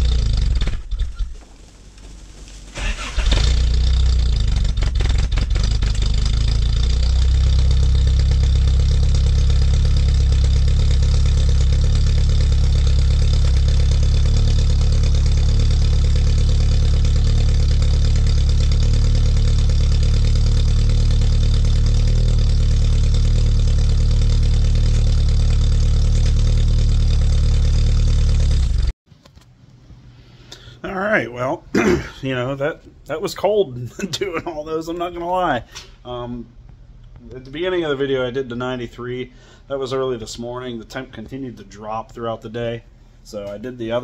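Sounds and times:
car engine idling: 0.0s - 28.9s.

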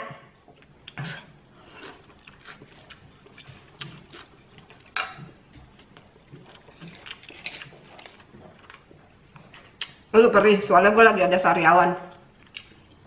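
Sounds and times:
slurping and chewing noodles: 0.6s - 10.0s.

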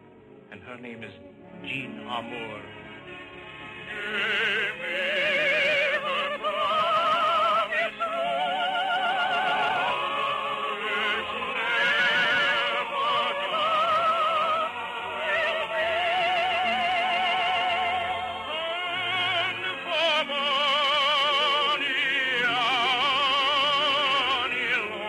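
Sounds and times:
musical accompaniment: 0.0s - 25.0s
classical singing with vibrato: 3.7s - 25.0s.

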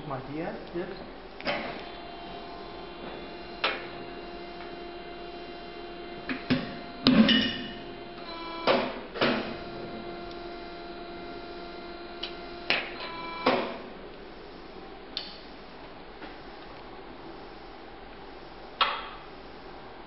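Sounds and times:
punching machine motor hum: 1.1s - 14.6s.

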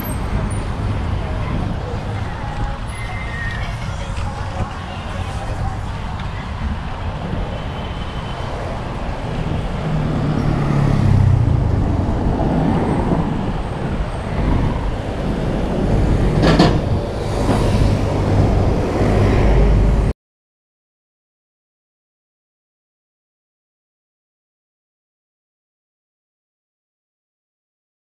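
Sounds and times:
deep traffic rumble: 0.0s - 20.1s
vehicles passing: 0.0s - 20.1s.

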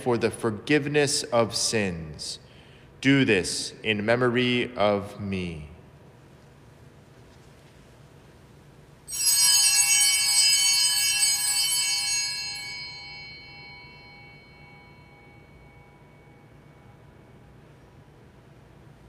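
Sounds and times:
small bells jangling: 9.1s - 16.5s.

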